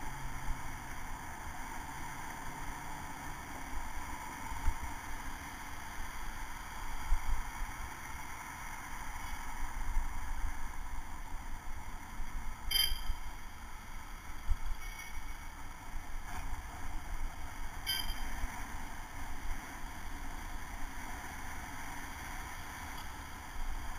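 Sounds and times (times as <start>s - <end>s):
city traffic: 0.0s - 23.9s
bicycle bell ding: 12.7s - 13.3s, 17.9s - 18.3s.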